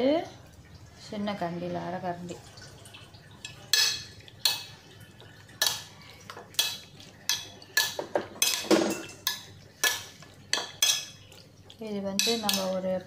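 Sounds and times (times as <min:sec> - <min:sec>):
food clinking against ceramic plate: 0:03.4 - 0:04.8, 0:05.6 - 0:11.3, 0:12.2 - 0:12.8.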